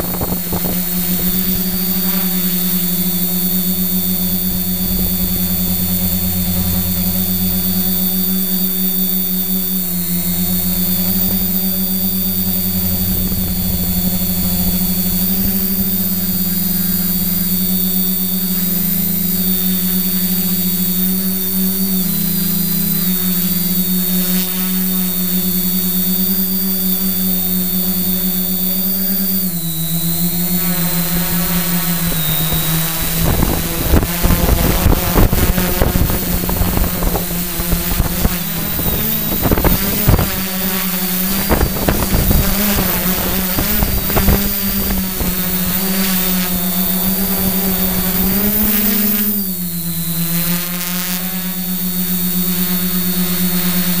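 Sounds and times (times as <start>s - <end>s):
wind buffeting microphone: 0.0s - 2.3s, 32.4s - 40.6s, 41.3s - 45.4s
drone propellers whining: 0.0s - 54.0s.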